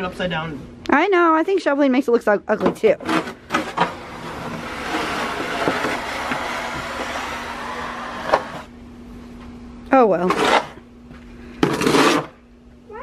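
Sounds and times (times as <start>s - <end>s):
snow shovel scraping concrete: 3.0s - 8.7s, 10.2s - 10.8s, 11.6s - 12.4s.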